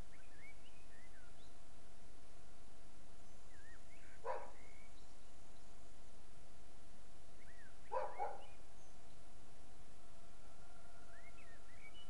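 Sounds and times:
faint bird chirps: 0:00.0 - 0:01.6, 0:03.2 - 0:05.9, 0:07.4 - 0:09.3, 0:10.7 - 0:12.0
dog barking: 0:04.2 - 0:04.6, 0:07.9 - 0:08.4.

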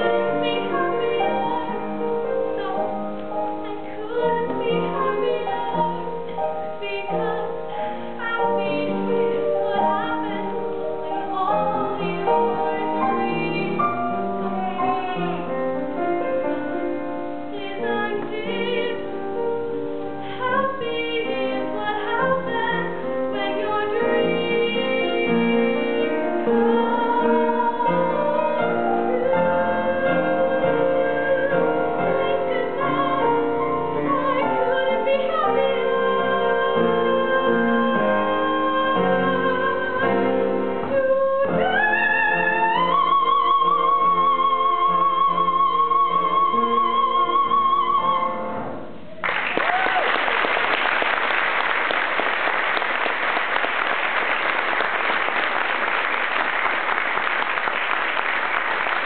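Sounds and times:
girl singing: 0:00.0 - 0:15.6, 0:17.5 - 0:19.2, 0:20.2 - 0:48.3
audience applauding: 0:49.2 - 0:59.0.

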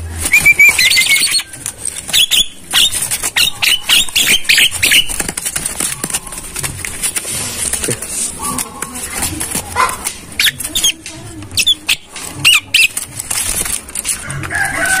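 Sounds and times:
bird trilling and calling: 0:00.2 - 0:06.5, 0:08.3 - 0:13.1.

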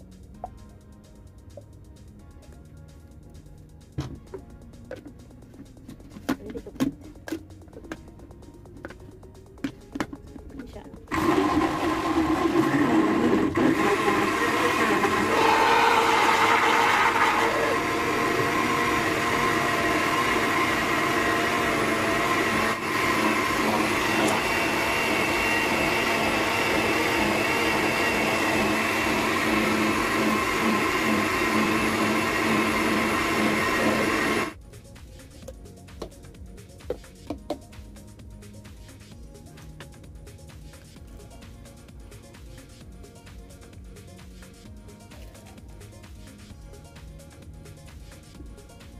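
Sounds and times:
blender motor running: 0:11.1 - 0:34.6.

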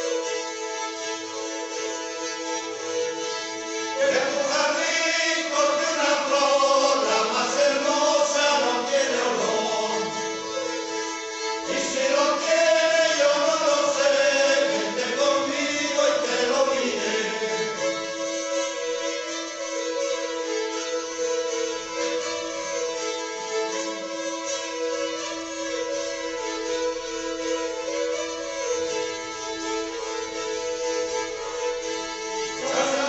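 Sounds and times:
bowed fiddles droning: 0:00.0 - 0:33.0
men singing together: 0:04.0 - 0:10.4, 0:11.7 - 0:17.9, 0:32.6 - 0:33.0.

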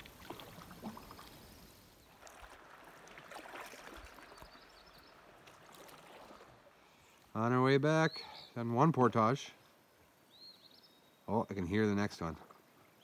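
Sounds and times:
small water splashes: 0:00.0 - 0:07.3
paddle dipping and dripping: 0:00.0 - 0:07.4, 0:11.5 - 0:13.0.

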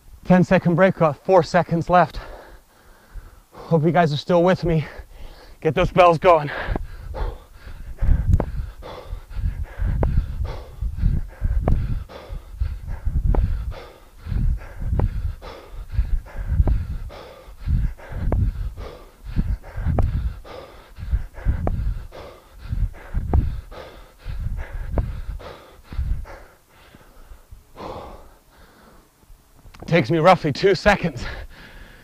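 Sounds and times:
man's forceful breaths: 0:02.0 - 0:03.9, 0:04.7 - 0:29.2, 0:31.1 - 0:32.0
thumping on microphone: 0:08.2 - 0:08.6, 0:09.9 - 0:10.3, 0:11.6 - 0:12.0, 0:13.1 - 0:13.6, 0:16.6 - 0:16.9, 0:18.2 - 0:18.6, 0:21.5 - 0:21.9, 0:23.2 - 0:23.6.

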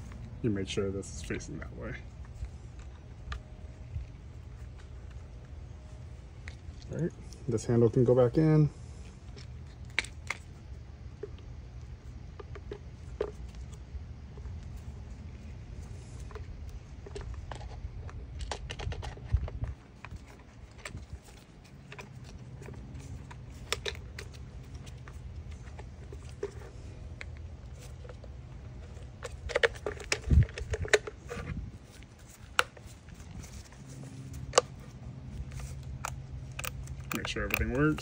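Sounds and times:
low steady hum: 0:00.0 - 0:38.0.

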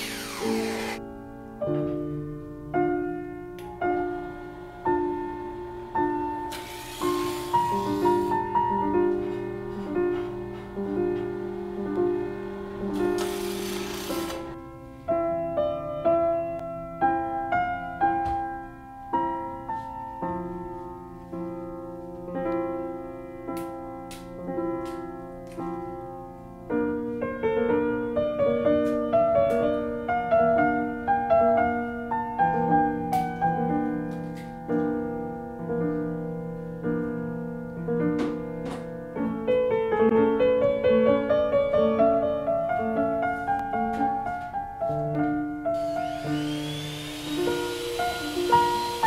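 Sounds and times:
power router whine: 0:00.0 - 0:01.0, 0:03.9 - 0:08.6, 0:09.2 - 0:14.6, 0:45.8 - 0:49.0
lively solo piano music: 0:00.4 - 0:06.5, 0:07.5 - 0:13.4, 0:14.4 - 0:45.8.

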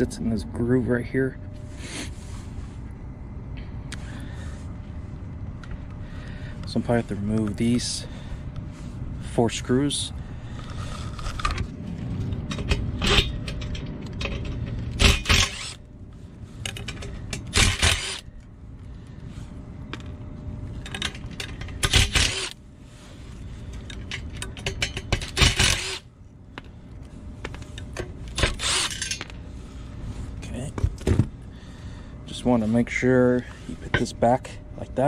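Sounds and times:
power tool and metal rattling: 0:12.5 - 0:15.8, 0:16.9 - 0:18.3, 0:20.9 - 0:22.6, 0:24.2 - 0:26.1, 0:28.4 - 0:29.3.

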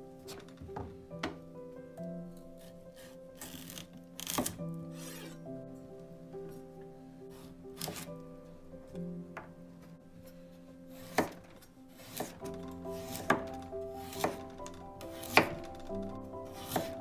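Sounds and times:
background music: 0:00.0 - 0:17.0
knife chopping on cutting board: 0:11.0 - 0:11.4, 0:12.0 - 0:12.4, 0:13.0 - 0:14.5, 0:15.1 - 0:15.6, 0:16.6 - 0:17.0.

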